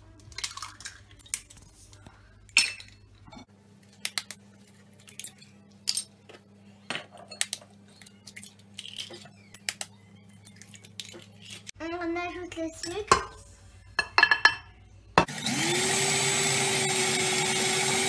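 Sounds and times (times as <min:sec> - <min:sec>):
eggs cracking on steel bowl: 0:00.1 - 0:01.6, 0:04.0 - 0:04.4, 0:07.3 - 0:11.8.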